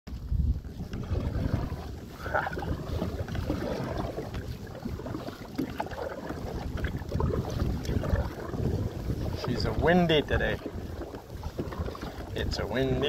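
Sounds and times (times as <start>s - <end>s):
paddle splashing water: 0.1s - 13.0s
wind gusting on microphone: 0.1s - 13.0s.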